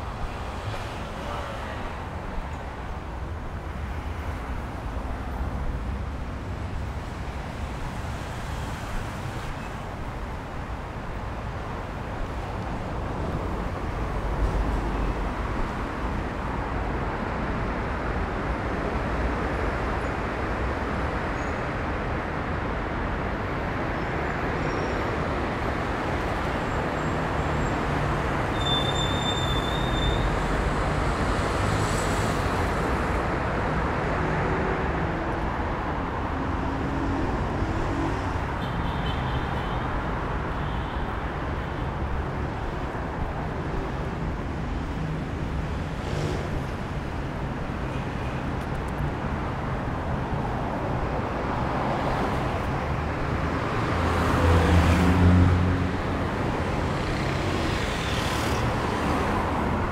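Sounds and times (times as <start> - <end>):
road traffic rumble and tyre hiss: 0.0 - 59.9.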